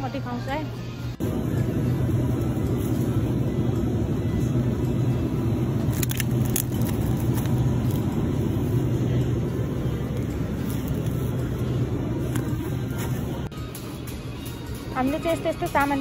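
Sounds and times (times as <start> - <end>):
supermarket background hum: 0.0 - 16.0
plastic film crackling: 5.8 - 8.2.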